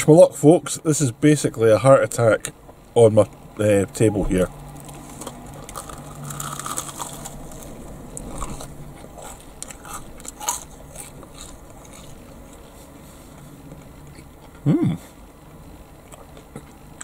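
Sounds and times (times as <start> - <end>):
crunchy chewing: 4.7 - 17.0.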